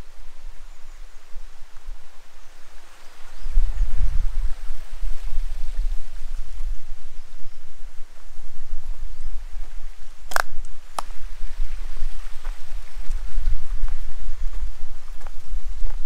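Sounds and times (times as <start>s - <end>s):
faint hiss: 0.0s - 16.0s
wind buffeting microphone: 0.0s - 16.0s
sharp clicks: 10.3s - 11.1s.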